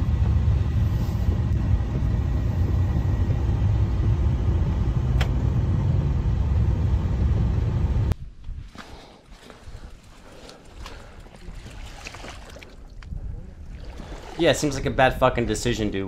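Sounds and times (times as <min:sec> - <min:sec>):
car interior rumble: 0:00.0 - 0:08.2
sharp click: 0:05.2 - 0:05.4.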